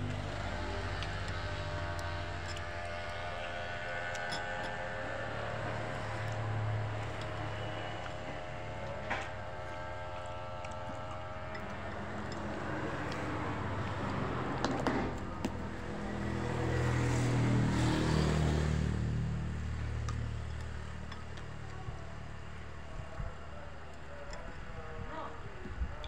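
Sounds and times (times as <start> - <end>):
vehicle passing by: 11.9 - 20.9.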